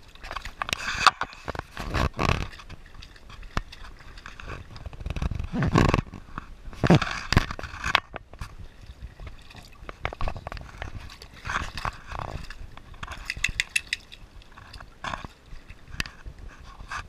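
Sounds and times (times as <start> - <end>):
sharp clicks and knocks: 13.0 - 14.2.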